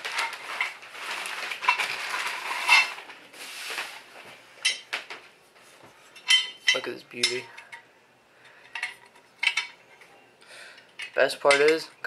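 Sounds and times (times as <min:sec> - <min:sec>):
plastic packaging crinkling: 0:00.0 - 0:04.2.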